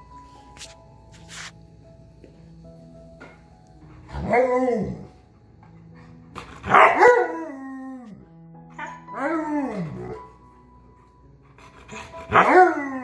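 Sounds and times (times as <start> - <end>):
faint background music: 0.0 - 13.0
dogs howling: 6.6 - 8.2, 8.8 - 10.3, 12.2 - 13.0.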